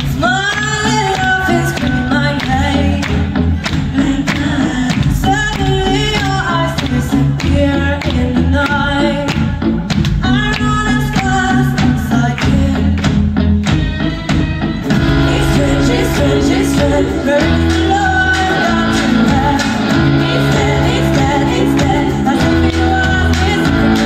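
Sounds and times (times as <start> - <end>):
woman singing: 0.0 - 13.3, 14.9 - 24.0
electric guitars: 0.0 - 24.0
keyboards: 0.0 - 24.0
drum beat: 13.1 - 24.0.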